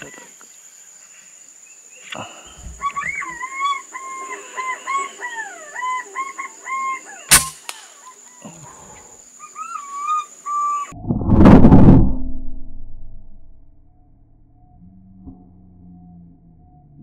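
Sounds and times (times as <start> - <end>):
pigeons whistling calls: 2.7 - 8.2, 9.4 - 11.0
air rifle shot crack: 7.3 - 8.0.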